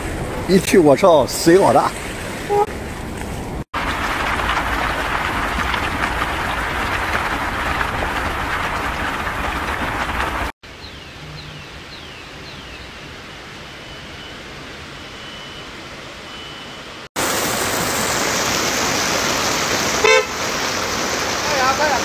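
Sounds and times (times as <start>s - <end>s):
heavy rain and rushing water: 0.0s - 10.6s, 17.1s - 22.0s.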